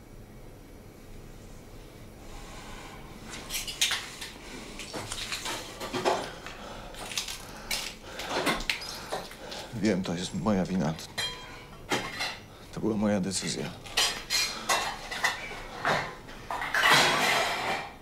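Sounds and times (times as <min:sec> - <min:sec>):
dishes and cutlery clinking: 0:11.0 - 0:12.5, 0:13.8 - 0:18.0.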